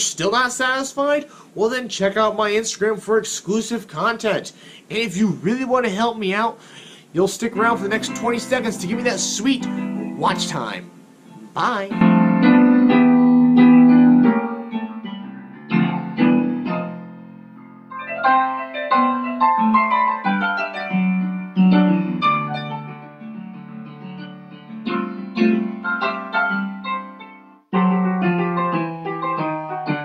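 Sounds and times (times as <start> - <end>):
piano music: 7.4 - 30.0.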